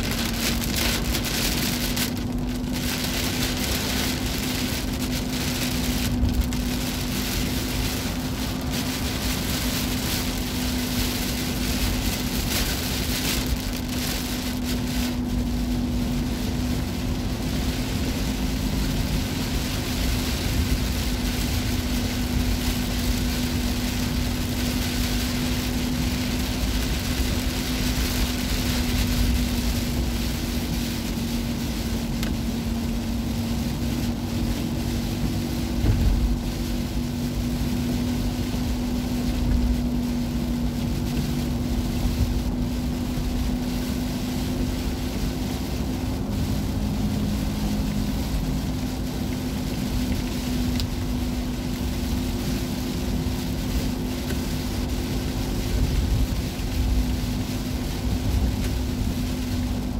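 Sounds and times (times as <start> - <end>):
heavy rain on a moving car: 0.0 - 59.9
tyres on a wet road: 0.0 - 59.9.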